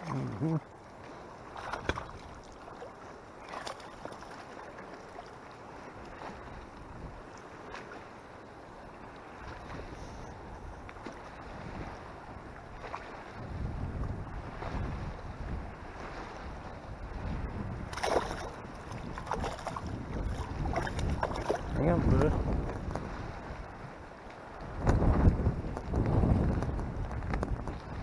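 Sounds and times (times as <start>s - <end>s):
water lapping and sloshing: 0.0s - 28.0s
wind buffeting microphone: 5.7s - 7.3s, 8.8s - 28.0s.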